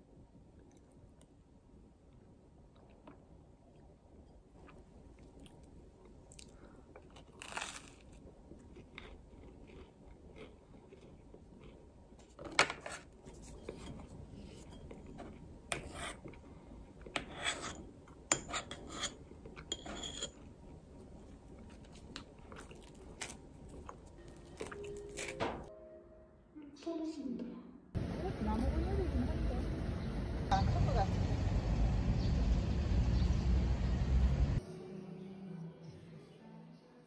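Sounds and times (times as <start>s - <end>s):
knife scraping butter on toast: 12.8s - 16.4s, 17.2s - 20.5s.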